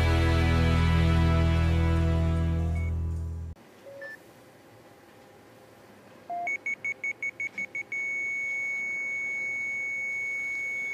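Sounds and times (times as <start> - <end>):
patient monitor beeping: 6.3 - 10.9.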